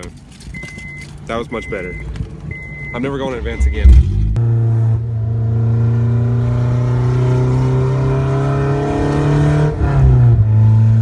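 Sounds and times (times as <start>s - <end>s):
car engine while driving: 0.0s - 11.0s.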